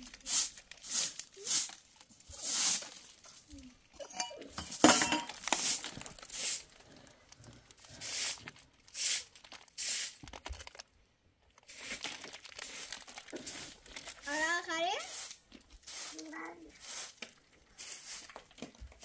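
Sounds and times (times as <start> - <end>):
broom sweeping concrete: 0.0 - 3.4, 4.3 - 6.7, 7.9 - 10.2, 11.7 - 12.0, 12.6 - 19.0.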